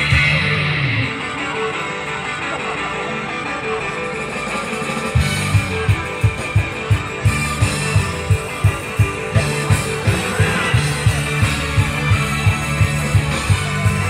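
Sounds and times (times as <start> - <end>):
idol-pop music over speakers: 0.0 - 14.0
kick drum and bass beat: 5.2 - 14.0.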